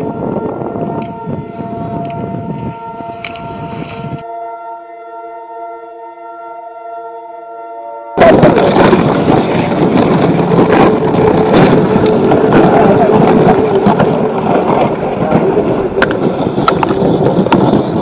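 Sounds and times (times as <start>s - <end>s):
wind buffeting microphone: 0.0s - 4.3s, 8.2s - 18.0s.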